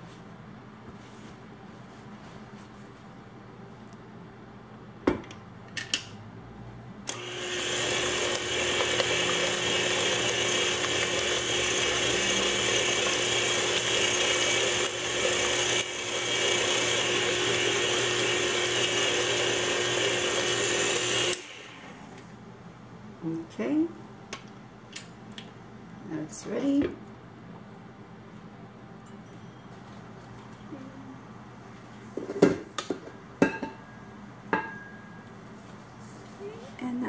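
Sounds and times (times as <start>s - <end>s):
stand mixer motor running: 7.1s - 21.8s.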